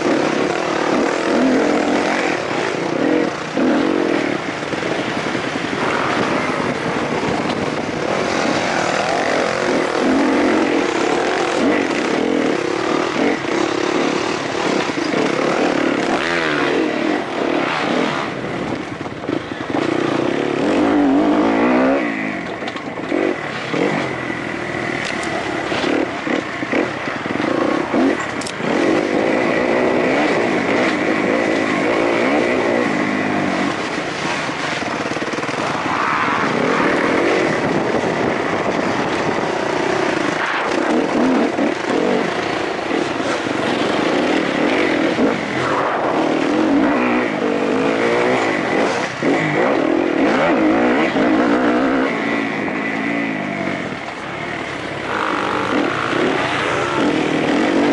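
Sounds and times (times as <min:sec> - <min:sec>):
motocross bike engine revving: 0:00.0 - 0:57.9.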